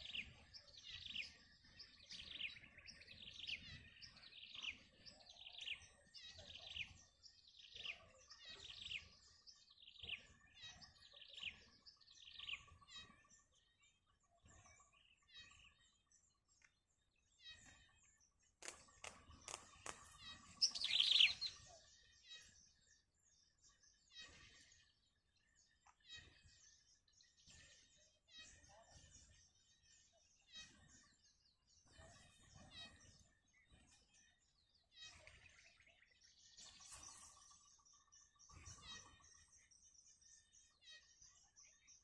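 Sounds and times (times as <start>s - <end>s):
bird chick chirping: 17.5s - 22.6s
sharp clicks: 18.6s - 20.9s.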